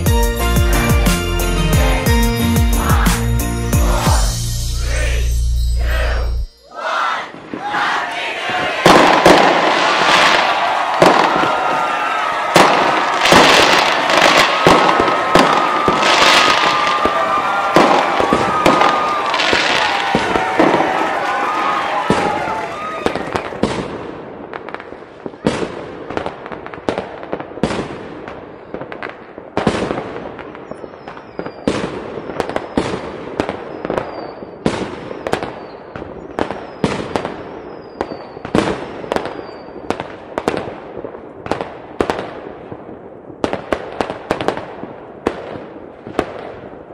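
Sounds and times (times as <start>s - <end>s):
fireworks high whistles: 3.8s - 6.8s, 12.6s - 23.8s, 30.6s - 39.9s
fireworks bangs and crackle: 8.4s - 46.9s.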